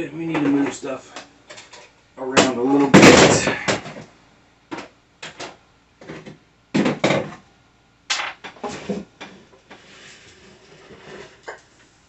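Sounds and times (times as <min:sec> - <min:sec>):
wooden knocks and scrapes: 0:08.5 - 0:11.6.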